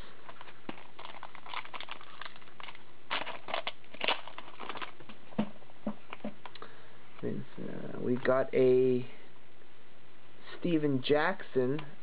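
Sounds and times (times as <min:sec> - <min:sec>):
trading cards flipping and scraping: 0:00.2 - 0:05.5.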